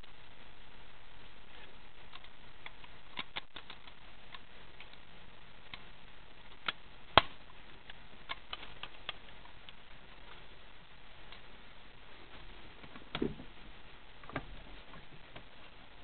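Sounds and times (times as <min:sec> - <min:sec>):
hands clicking and tapping parts: 0:02.1 - 0:05.0.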